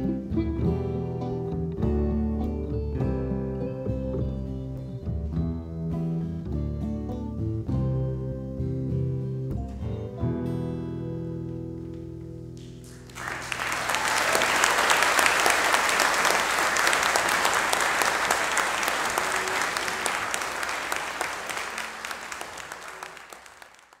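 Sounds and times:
audience applause: 12.6s - 24.0s.

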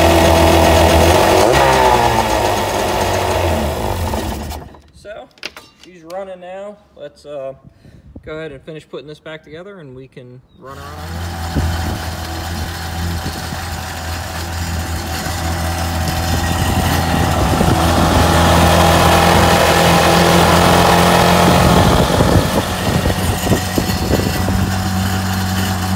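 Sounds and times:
two-stroke engine idling: 0.0s - 4.8s, 11.0s - 25.9s.

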